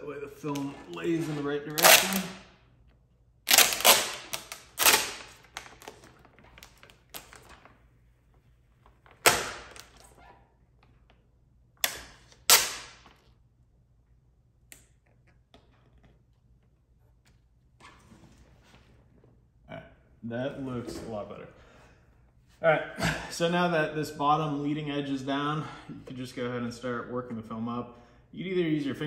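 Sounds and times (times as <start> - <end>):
film peeling off: 0.4 - 2.4, 3.5 - 7.8
film rustling: 3.5 - 10.3.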